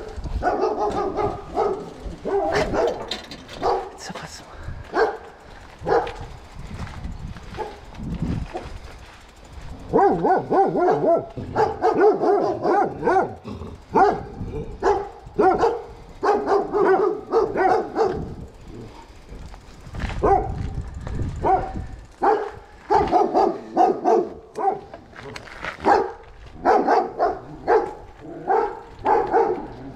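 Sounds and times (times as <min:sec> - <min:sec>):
dog barking and yelping: 0:00.0 - 0:04.0, 0:05.0 - 0:06.2, 0:09.9 - 0:18.5, 0:21.4 - 0:25.0, 0:25.8 - 0:29.9.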